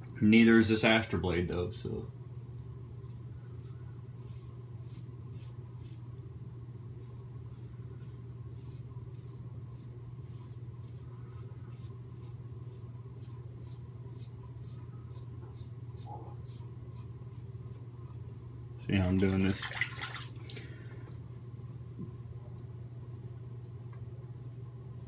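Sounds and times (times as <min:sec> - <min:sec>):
steady low hum: 0:00.0 - 0:25.0
razor scraping stubble: 0:02.3 - 0:06.1, 0:07.0 - 0:18.2.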